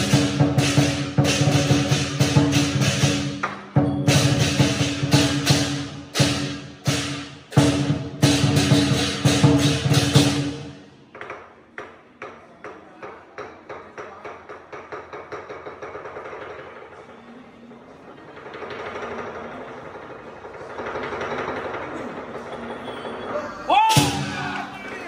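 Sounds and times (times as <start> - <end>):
drum cymbals and gong beats: 0.0 - 10.8, 23.8 - 24.6.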